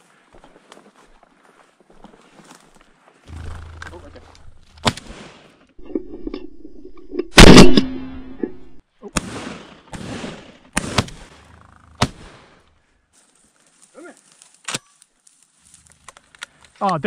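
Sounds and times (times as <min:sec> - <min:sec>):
sharp gunshot cracks: 0:07.3 - 0:08.4, 0:09.2 - 0:11.2
shotgun blast: 0:07.3 - 0:11.2.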